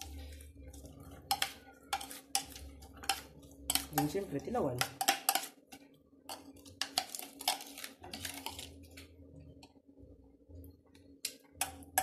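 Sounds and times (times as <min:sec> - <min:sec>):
metal spoon clinking on plastic bowls: 0:00.0 - 0:08.8.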